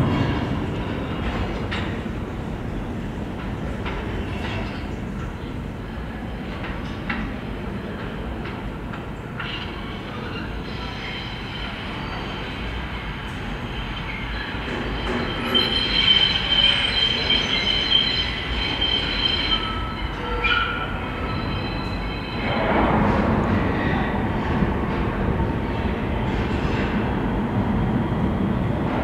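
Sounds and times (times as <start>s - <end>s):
subway train rumbling: 0.0s - 29.0s
wheels squealing on rails: 9.3s - 24.6s.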